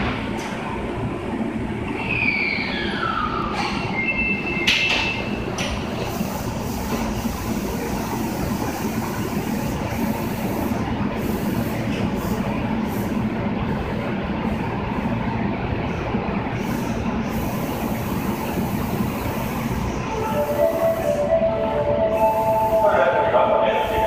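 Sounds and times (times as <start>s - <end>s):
subway train hum and rumble: 0.0s - 24.0s.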